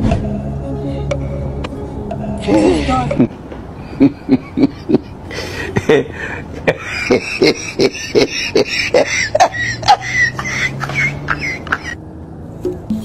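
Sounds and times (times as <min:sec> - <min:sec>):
steady low tone: 0:00.0 - 0:04.1
percussive music beat: 0:12.6 - 0:13.0.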